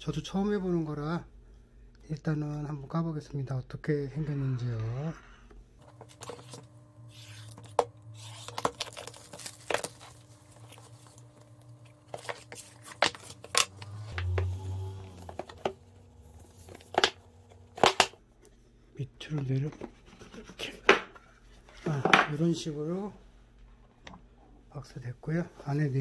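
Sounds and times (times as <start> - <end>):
packaging crinkling and tearing: 5.8 - 14.4.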